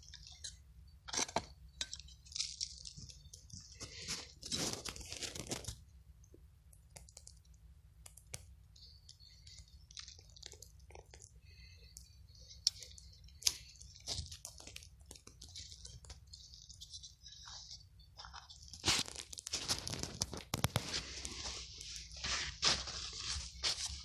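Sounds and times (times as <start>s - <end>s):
hand digging crunchy soil: 12.6s - 24.0s.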